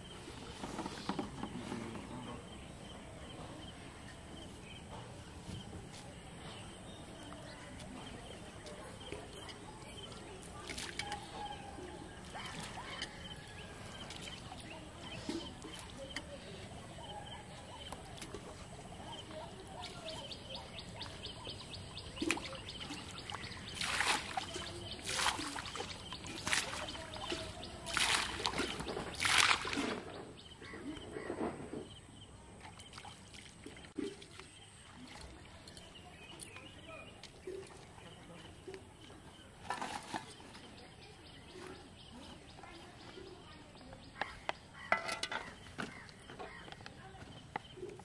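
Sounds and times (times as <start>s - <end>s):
water pouring into pond: 10.4s - 11.3s, 21.9s - 30.2s, 32.6s - 36.1s.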